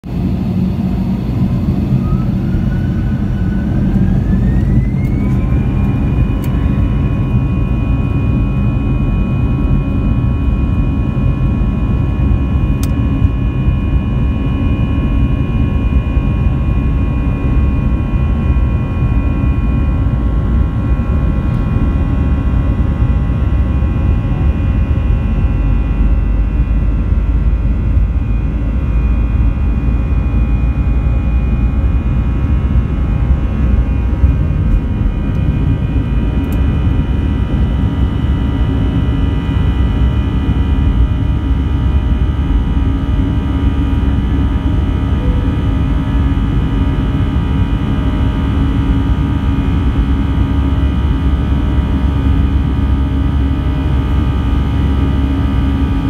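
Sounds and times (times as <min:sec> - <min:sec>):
jet engine whine: 0:00.0 - 0:56.0
low rumble of aircraft: 0:00.0 - 0:56.0.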